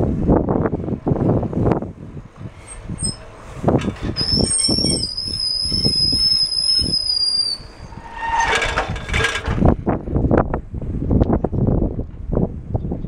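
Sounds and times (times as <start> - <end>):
road rumble: 0.0 - 12.8
wind buffeting microphone: 0.0 - 13.0
bicycle brakes squealing: 2.6 - 3.3, 4.0 - 9.2.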